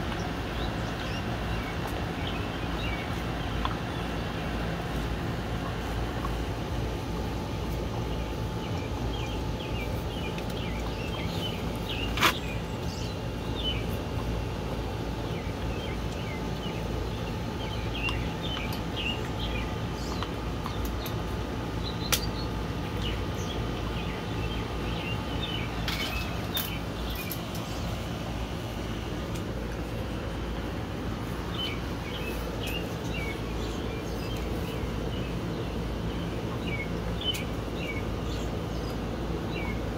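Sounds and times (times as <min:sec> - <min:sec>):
birds chirping: 0:00.0 - 0:39.9
steady low hum: 0:00.0 - 0:39.9.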